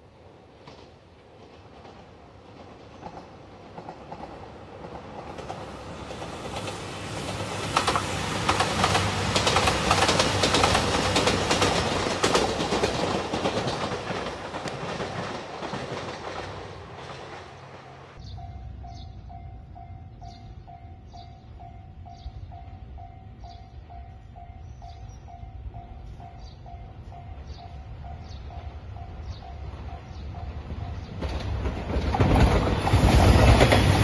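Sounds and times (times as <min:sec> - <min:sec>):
diesel train rumbling past: 0:00.0 - 0:34.0
wheels clacking over rail joints: 0:00.6 - 0:18.2, 0:29.4 - 0:34.0.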